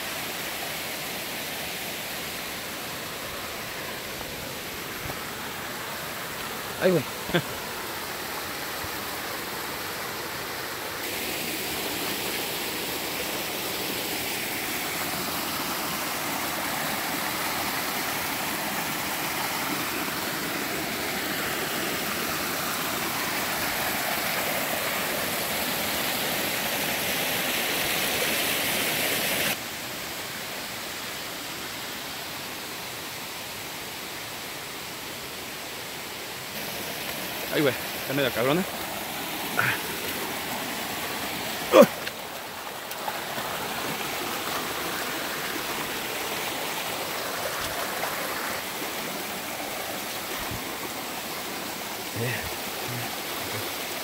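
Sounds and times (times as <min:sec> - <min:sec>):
shallow rocky stream flowing: 0:00.0 - 0:54.0
waterfall pouring into a pool: 0:05.2 - 0:29.6, 0:36.5 - 0:54.0.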